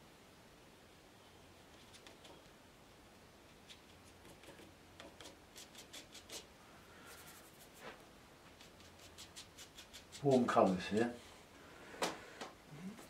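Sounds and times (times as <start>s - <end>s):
brush scratching on paper: 3.5s - 11.2s.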